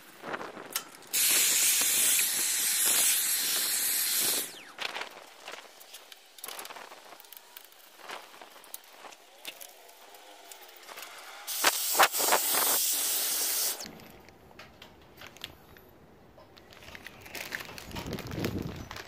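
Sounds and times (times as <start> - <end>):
handheld vacuum hissing suction: 1.1 - 7.3, 11.4 - 13.9.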